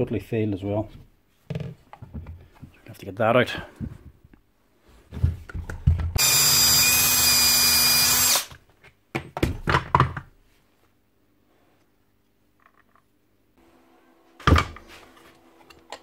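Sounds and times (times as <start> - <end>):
power drill running: 6.2 - 8.5.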